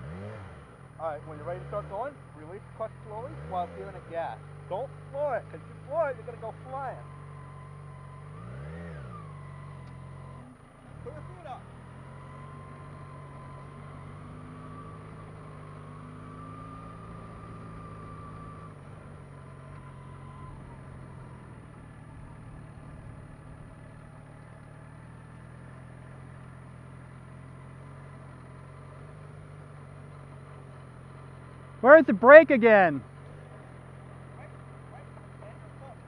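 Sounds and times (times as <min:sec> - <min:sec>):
motorcycle engine at low revs: 0:00.0 - 0:36.0.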